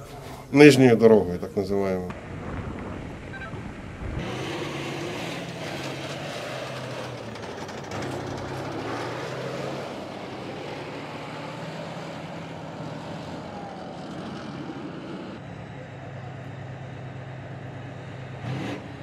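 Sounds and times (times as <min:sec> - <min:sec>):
tank tracks clattering on road: 0:02.1 - 0:13.3
tank engine hum: 0:02.1 - 0:19.0.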